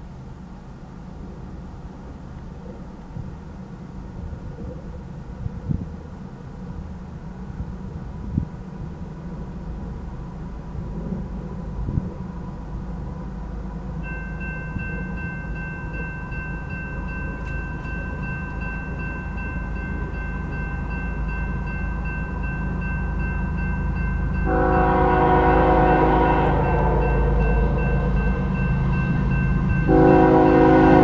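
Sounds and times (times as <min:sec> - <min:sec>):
railroad crossing bell ringing: 0:13.9 - 0:31.0
locomotive air horn: 0:24.4 - 0:27.8, 0:29.9 - 0:31.0.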